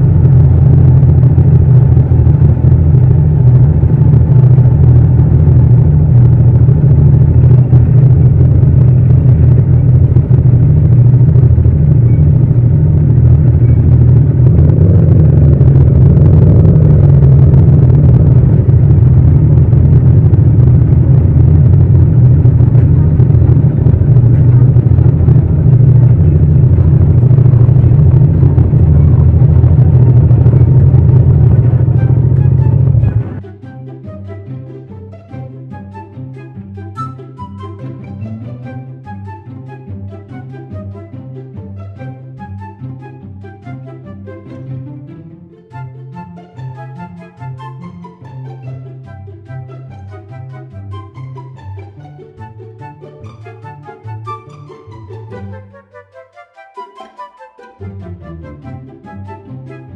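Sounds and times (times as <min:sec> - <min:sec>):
motorcycle engine rumbling: 0:00.0 - 0:33.4.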